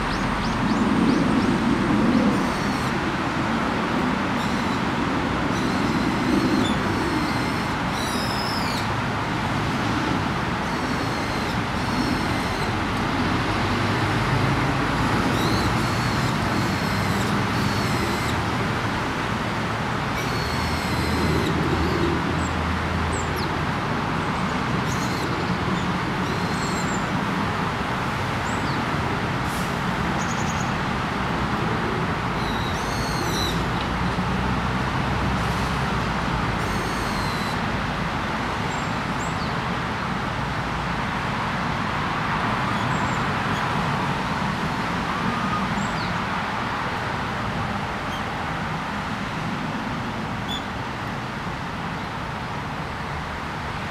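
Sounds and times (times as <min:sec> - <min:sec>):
distant road traffic: 0:00.0 - 0:53.9.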